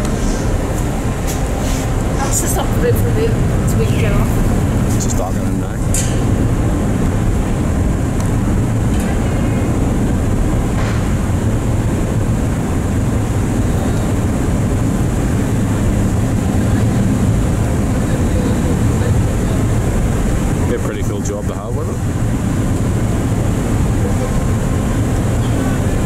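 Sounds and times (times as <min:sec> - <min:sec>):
low rumble of ship engines: 0:00.0 - 0:26.0.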